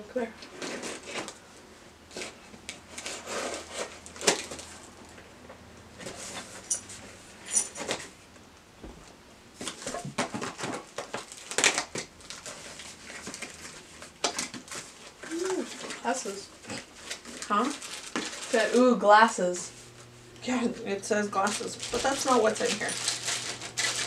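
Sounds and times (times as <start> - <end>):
packaging rustling: 0.4 - 1.5, 2.1 - 5.2, 9.6 - 19.0, 21.3 - 24.0.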